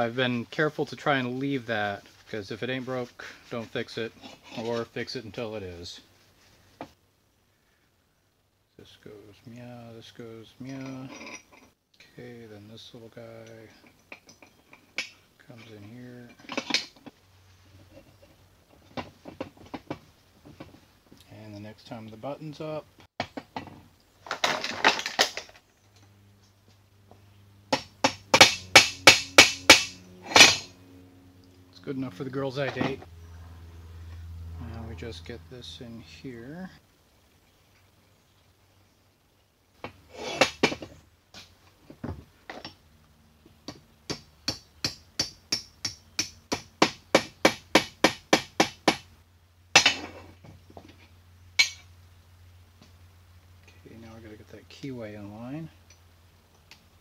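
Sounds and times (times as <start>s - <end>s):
metal parts clattering on workbench: 23.4s - 25.6s, 28.8s - 30.7s, 49.8s - 50.3s
hammer tapping metal: 27.7s - 30.7s, 43.7s - 49.0s, 51.6s - 51.8s.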